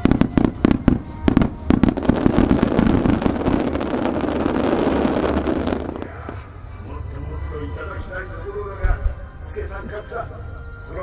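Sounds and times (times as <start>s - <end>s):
fireworks bangs: 0.0s - 6.5s
fireworks crackling: 0.0s - 6.6s.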